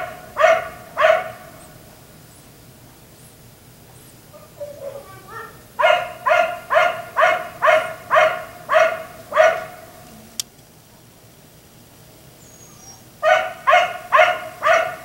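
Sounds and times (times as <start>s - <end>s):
dog yelping: 0.0s - 1.5s, 4.4s - 10.0s, 12.4s - 15.0s
dog barking: 0.0s - 1.6s, 4.3s - 10.0s, 13.2s - 15.0s.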